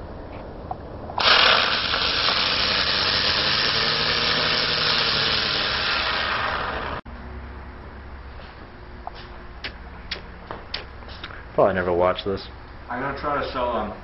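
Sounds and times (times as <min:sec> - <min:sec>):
firework hissing: 0:01.2 - 0:07.0.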